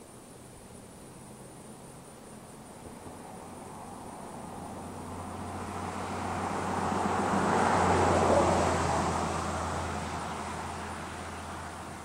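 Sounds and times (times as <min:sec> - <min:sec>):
road vehicle passing by: 0:03.1 - 0:12.0.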